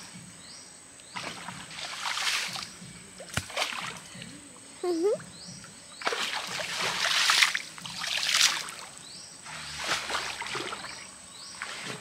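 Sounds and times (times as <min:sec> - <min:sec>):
water splashing and sloshing: 0:01.1 - 0:04.2, 0:06.0 - 0:12.0.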